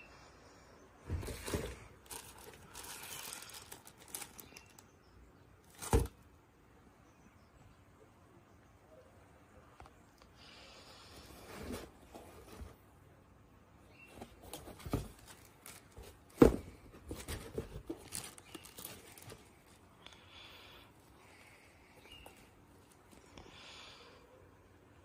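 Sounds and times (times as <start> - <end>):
sneakers being handled: 1.1 - 4.4, 5.7 - 6.1, 14.1 - 19.5.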